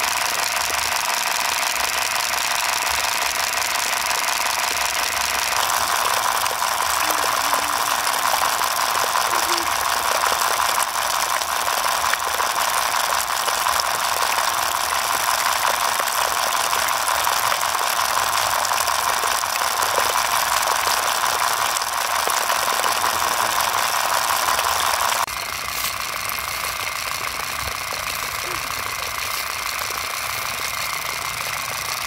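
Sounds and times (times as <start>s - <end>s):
model water pump whirring: 0.0s - 32.0s.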